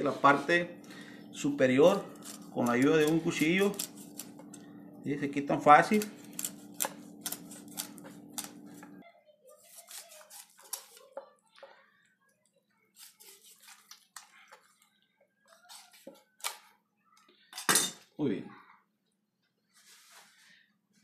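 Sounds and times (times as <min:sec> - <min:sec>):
knife scraping fish fin: 0:01.9 - 0:04.6, 0:06.0 - 0:08.9, 0:09.6 - 0:11.2, 0:12.9 - 0:14.6.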